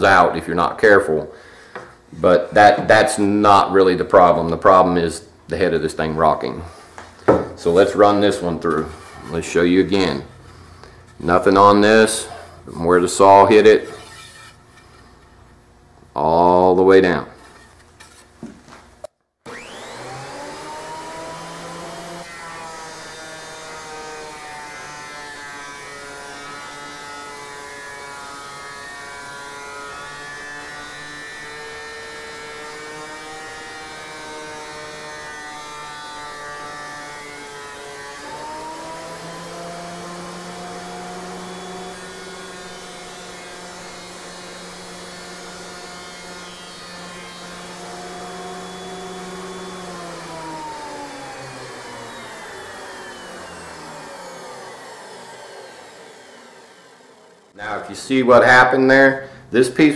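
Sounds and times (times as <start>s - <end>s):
thickness planer high whine: 6.0s - 15.2s, 19.5s - 58.9s
board being cut by planer: 13.2s - 14.6s, 19.5s - 57.8s.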